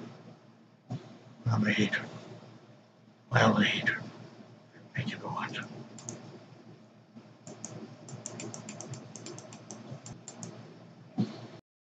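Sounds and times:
keyboard keys clicking: 0:06.0 - 0:06.2, 0:07.5 - 0:10.6.

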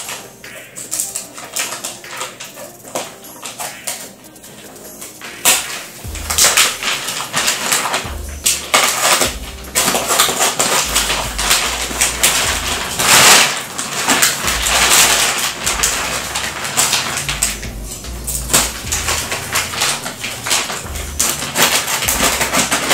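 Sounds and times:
plastic wrapping crinkling: 0:00.0 - 0:22.9
dull low thumps: 0:06.0 - 0:07.0, 0:08.1 - 0:08.7, 0:09.3 - 0:09.9, 0:10.9 - 0:13.1, 0:14.4 - 0:22.7.

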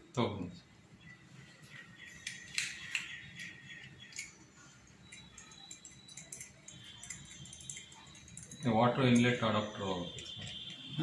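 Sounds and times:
small metal parts clicking: 0:02.2 - 0:04.4, 0:05.0 - 0:09.4.

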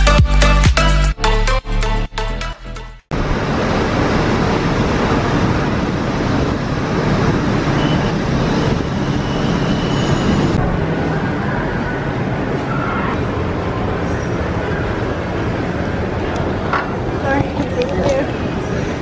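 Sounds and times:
electronic music: 0:00.0 - 0:03.1
vehicle engine and road noise: 0:03.0 - 0:19.0.

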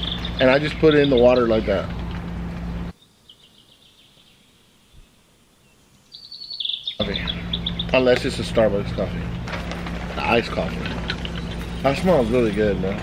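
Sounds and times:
faint bird chirping: 0:02.8 - 0:08.1.

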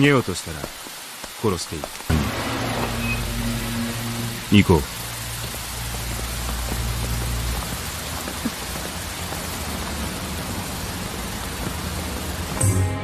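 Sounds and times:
steady rain hiss: 0:00.0 - 0:13.0
music: 0:02.1 - 0:05.2, 0:12.5 - 0:13.0
low hum: 0:02.1 - 0:08.2.

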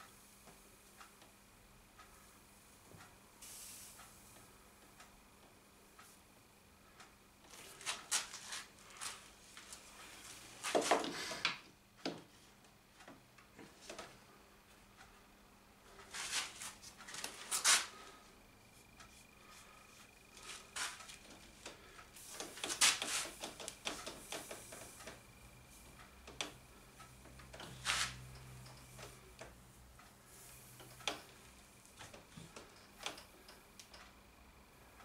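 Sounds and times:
wooden strips tapping and scraping: 0:07.5 - 0:09.8, 0:10.6 - 0:12.4, 0:16.0 - 0:18.2, 0:19.1 - 0:25.2, 0:27.4 - 0:29.6.

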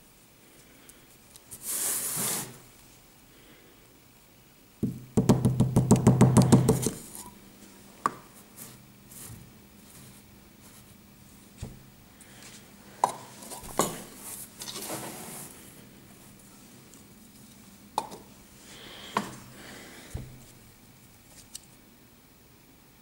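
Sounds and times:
tapping on plastic sand mold: 0:04.8 - 0:07.0.

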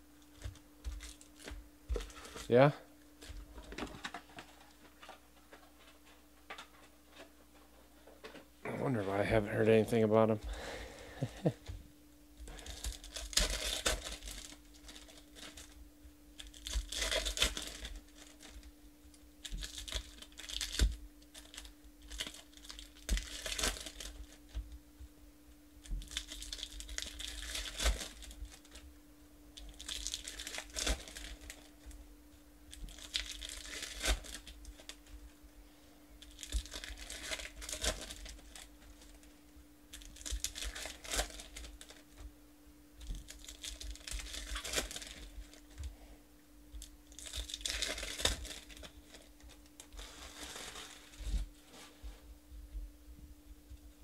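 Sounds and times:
faint steady hum: 0:00.0 - 0:54.0
foil wrappers tearing and crinkling: 0:00.3 - 0:04.8, 0:12.4 - 0:15.8, 0:16.4 - 0:18.7, 0:19.4 - 0:24.6, 0:25.8 - 0:28.8, 0:29.6 - 0:32.0, 0:32.7 - 0:35.1, 0:36.2 - 0:39.3, 0:39.9 - 0:42.2, 0:43.0 - 0:45.9, 0:46.8 - 0:51.5.

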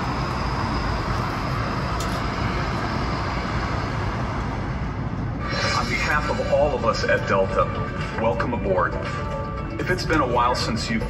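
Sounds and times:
rush of air: 0:00.0 - 0:06.9
low hum: 0:00.0 - 0:11.0.

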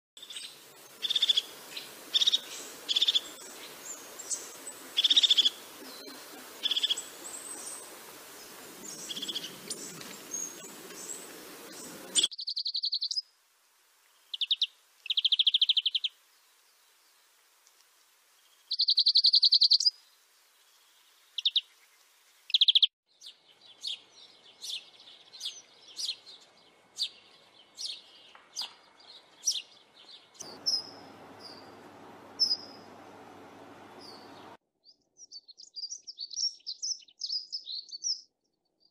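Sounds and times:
sparrow chirping: 0:00.2 - 0:07.8, 0:08.8 - 0:13.2, 0:14.3 - 0:16.1, 0:18.7 - 0:19.9, 0:22.5 - 0:33.0, 0:33.9 - 0:34.6
background hiss: 0:00.2 - 0:22.9, 0:30.4 - 0:34.6
bird singing rapid trills: 0:11.8 - 0:13.2, 0:22.5 - 0:26.4, 0:29.2 - 0:34.6.

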